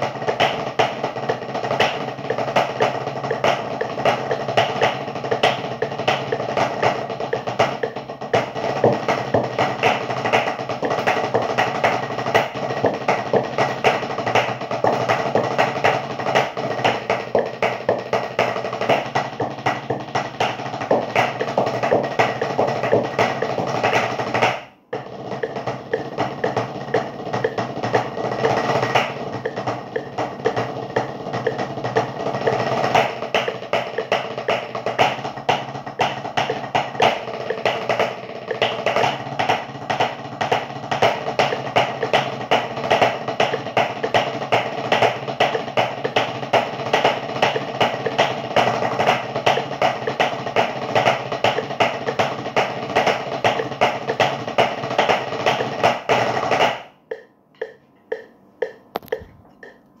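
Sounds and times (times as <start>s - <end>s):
drumsticks on practice pads: 0.0s - 60.0s.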